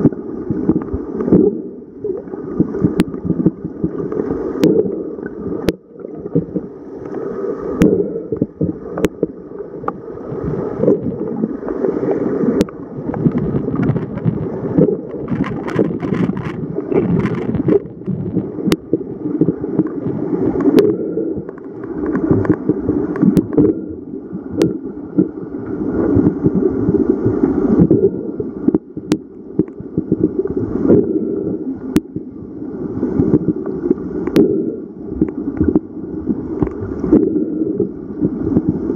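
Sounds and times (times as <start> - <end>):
muffled underwater rushing: 0.0 - 38.9.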